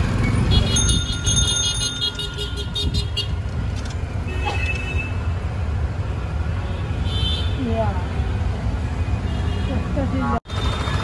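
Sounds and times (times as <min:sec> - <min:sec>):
traffic rumble: 0:00.0 - 0:11.0
rickshaw bell ringing: 0:00.1 - 0:02.8.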